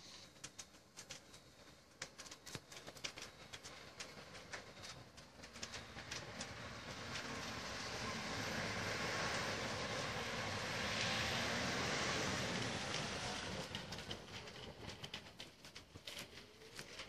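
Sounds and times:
sharp clicks and pops: 0.1s - 7.5s
fire engine approaching: 3.0s - 17.0s.

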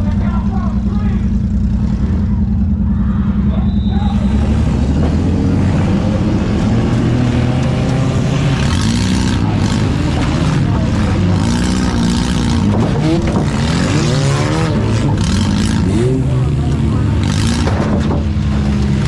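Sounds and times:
car engine revving: 0.0s - 19.0s.

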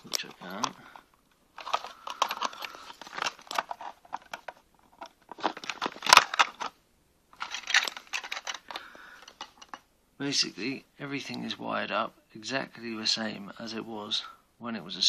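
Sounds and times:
plastic housing clicking and rattling: 1.6s - 6.8s, 7.4s - 9.8s.

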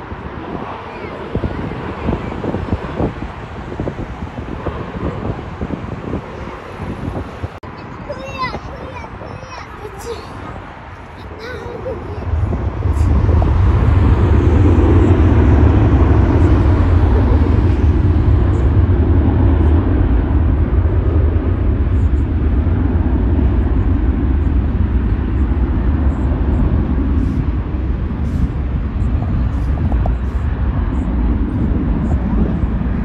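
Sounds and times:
jet engines rumbling: 0.0s - 33.0s
wind buffeting microphone: 0.0s - 33.0s.

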